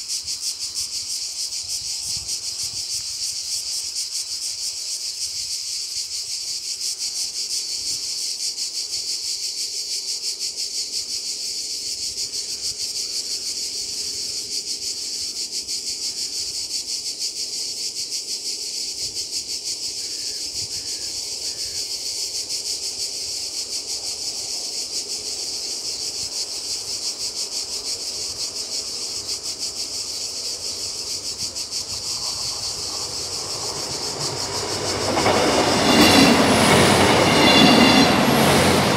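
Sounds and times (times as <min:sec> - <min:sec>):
insects shrilling: 0:00.0 - 0:38.9
train rumble: 0:18.7 - 0:38.9.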